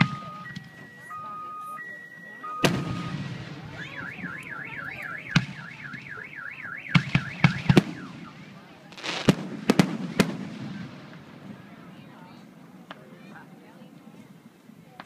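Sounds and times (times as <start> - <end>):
fireworks bangs: 0.0 - 1.1, 2.3 - 13.4
car alarm warbling: 0.0 - 8.6
fireworks crackle: 2.6 - 13.4.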